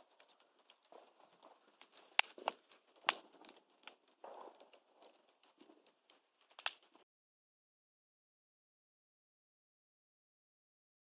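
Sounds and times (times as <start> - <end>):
fire crackling and popping: 0.0 - 7.0.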